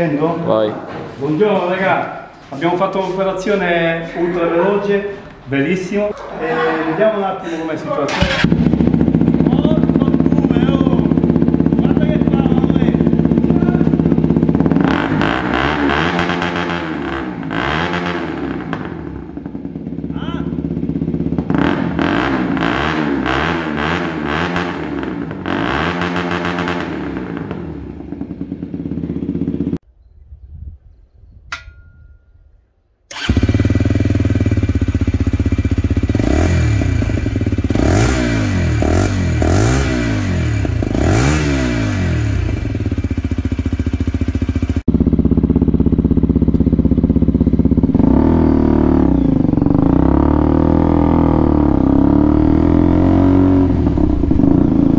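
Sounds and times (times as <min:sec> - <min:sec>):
motorcycle engine revving: 0:08.1 - 0:29.8, 0:33.1 - 0:54.9.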